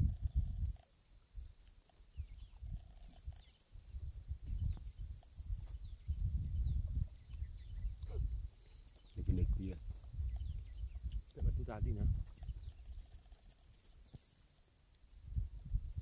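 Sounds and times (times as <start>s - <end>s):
low rumbling on microphone: 0.0s - 0.8s, 2.2s - 13.0s, 15.2s - 16.0s
insect chorus droning: 0.0s - 16.0s.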